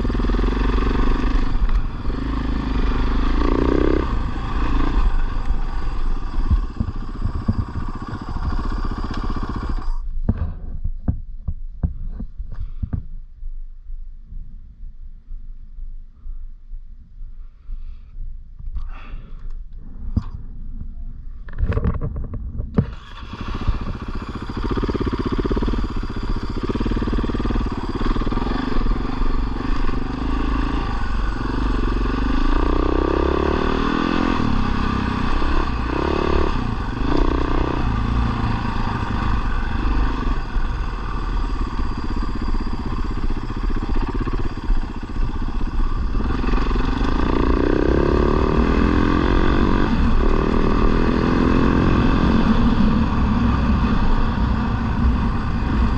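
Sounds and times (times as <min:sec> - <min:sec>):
off-road motorcycle engine revving: 0:00.0 - 0:10.0, 0:22.8 - 0:55.9.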